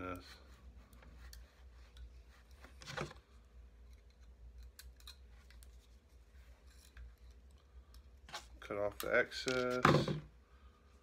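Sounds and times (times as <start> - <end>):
light clicks of wire and parts: 3.8 - 6.0.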